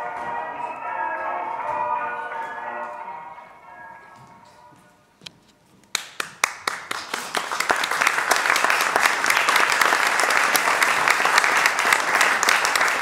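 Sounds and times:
audience applauding: 5.9s - 13.0s.

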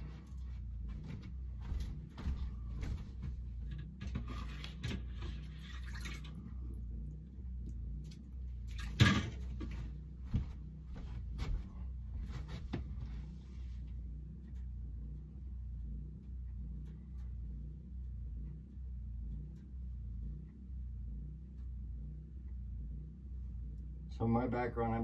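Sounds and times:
knocks clicks and shuffles: 0.0s - 5.6s, 7.6s - 21.8s
steady low hum: 0.0s - 25.0s.

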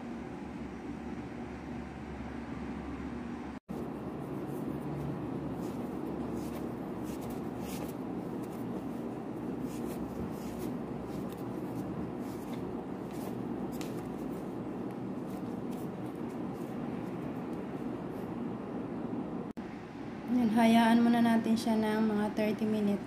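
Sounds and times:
low hum: 0.0s - 20.5s
hands kneading dough: 3.7s - 18.2s.

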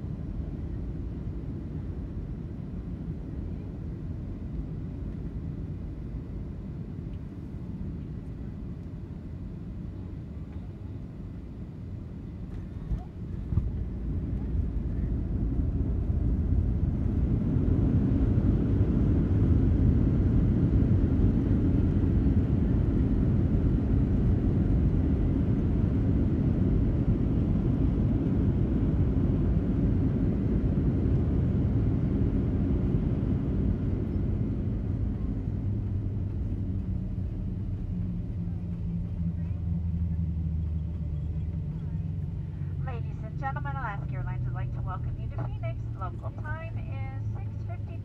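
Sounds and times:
jet landing rumble in cabin: 0.0s - 48.0s
steady hum: 42.3s - 48.0s.

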